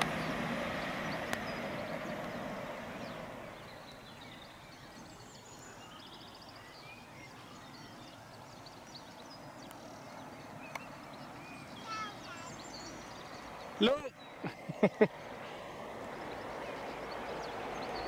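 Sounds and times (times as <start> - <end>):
diesel train rumbling away: 0.0 - 4.4
birds chirping and whistling: 0.0 - 14.7.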